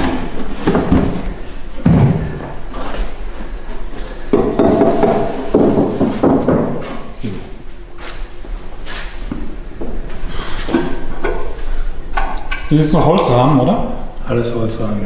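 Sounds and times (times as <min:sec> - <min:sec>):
heavy thud: 0:01.8 - 0:02.7.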